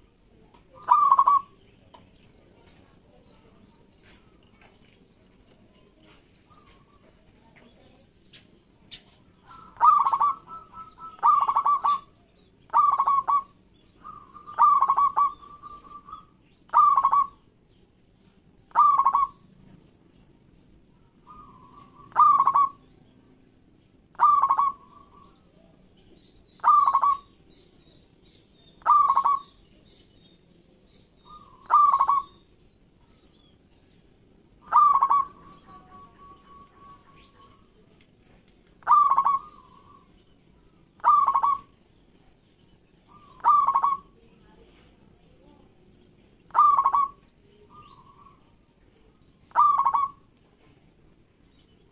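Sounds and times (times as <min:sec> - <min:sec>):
dove cooing: 0:00.7 - 0:01.6, 0:09.4 - 0:12.1, 0:12.7 - 0:17.4, 0:18.7 - 0:19.4, 0:21.2 - 0:22.9, 0:24.1 - 0:25.4, 0:26.6 - 0:27.3, 0:28.8 - 0:29.5, 0:31.2 - 0:32.4, 0:34.6 - 0:37.7, 0:38.8 - 0:40.1, 0:41.0 - 0:41.7, 0:43.1 - 0:44.2, 0:46.5 - 0:48.5, 0:49.5 - 0:50.3.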